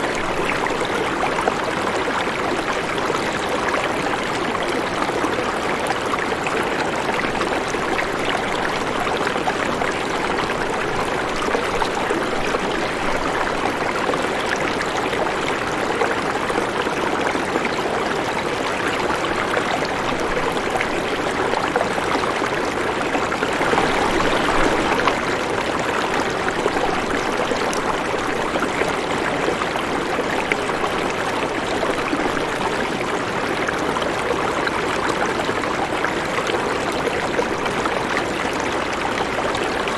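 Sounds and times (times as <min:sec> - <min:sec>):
running water rushing: 0:00.0 - 0:39.9.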